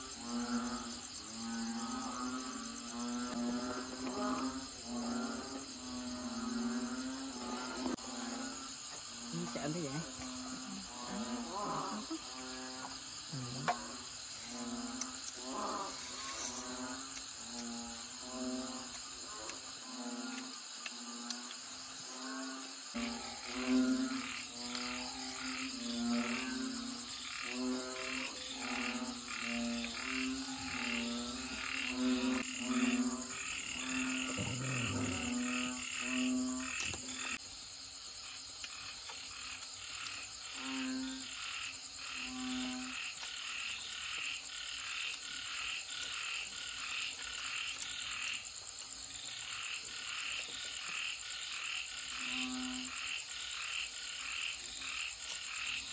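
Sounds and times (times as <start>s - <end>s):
deeper frog croak: 0.0s - 37.4s
frogs croaking in chorus: 0.0s - 55.9s
high insect drone: 0.0s - 55.9s.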